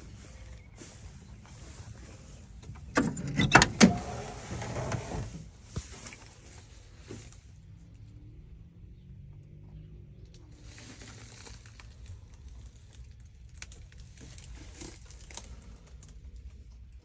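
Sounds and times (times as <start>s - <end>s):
car door latch clicks and clunks: 2.7s - 5.3s
car door scraping: 2.7s - 5.5s.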